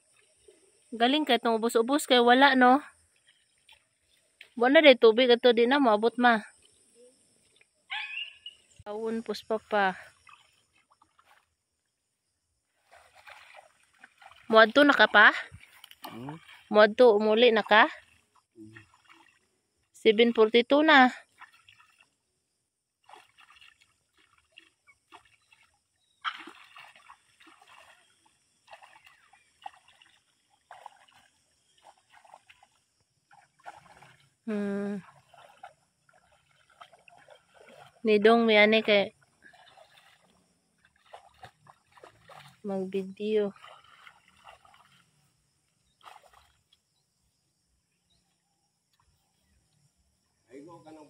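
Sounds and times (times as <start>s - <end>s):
splashing of muddy water: 9.7s - 11.8s, 12.7s - 46.9s.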